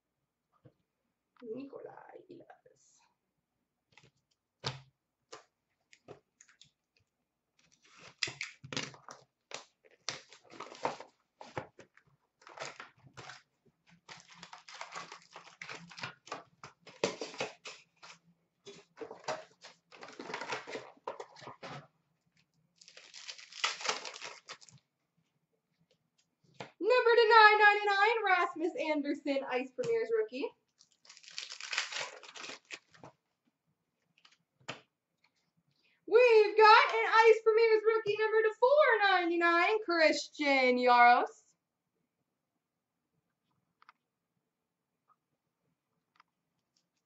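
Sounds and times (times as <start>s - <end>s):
wrappers crinkling and tearing: 7.6s - 11.6s, 12.4s - 18.2s, 22.8s - 24.8s, 30.8s - 33.1s.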